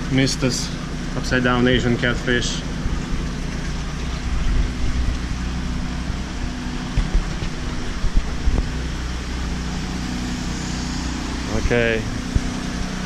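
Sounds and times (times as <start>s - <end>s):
generator humming: 0.0s - 13.0s
water hissing: 7.6s - 13.0s.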